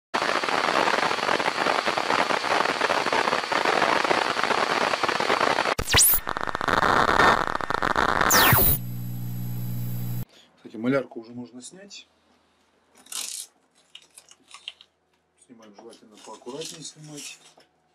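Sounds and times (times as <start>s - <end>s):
static hiss: 0.2s - 10.2s
falling synth sweep: 5.8s - 10.2s
low synth hum: 8.3s - 10.2s.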